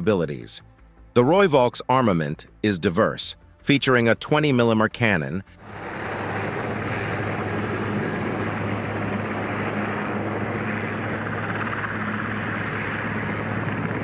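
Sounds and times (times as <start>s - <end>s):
helicopter rotor and engine: 5.6s - 14.0s.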